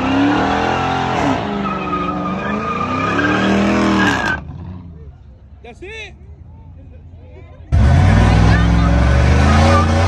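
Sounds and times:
tyres squealing: 0.1 - 4.4
car engine revving: 7.7 - 10.0.

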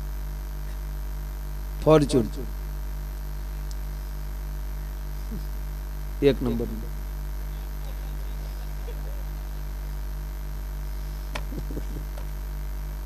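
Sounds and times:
low electrical mains hum: 0.0 - 13.0.

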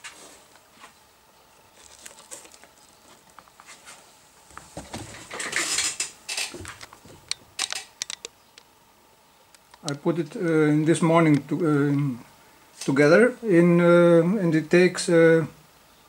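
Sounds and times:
rustling: 0.0 - 8.2
handling clicks and knocks: 4.5 - 8.7.

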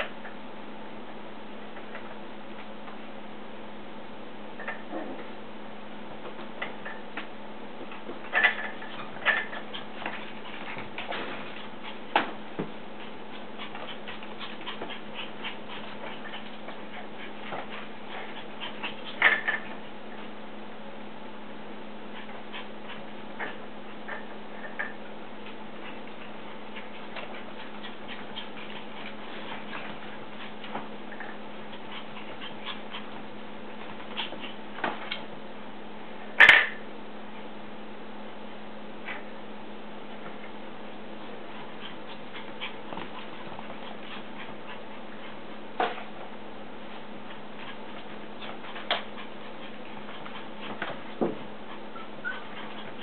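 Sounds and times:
puppies whining: 51.7 - 53.0
puppy yip: 51.9 - 52.6.

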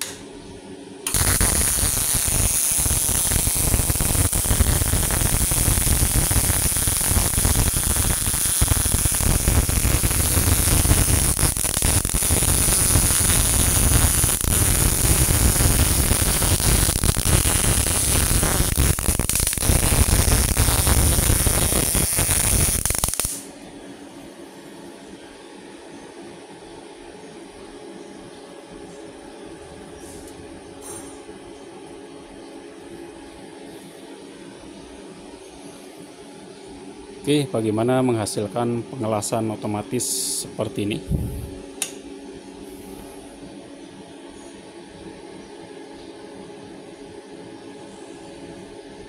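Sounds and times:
welding arc crackling sizzle: 0.0 - 0.2, 1.0 - 23.5.

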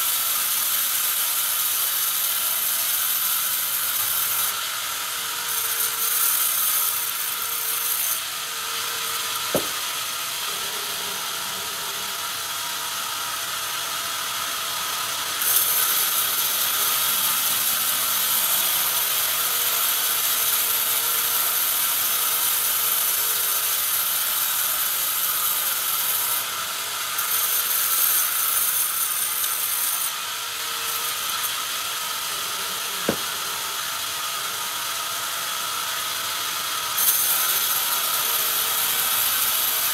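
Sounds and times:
band saw cutting log: 0.0 - 39.9
sharp knocks: 9.4 - 9.8, 33.0 - 33.4.

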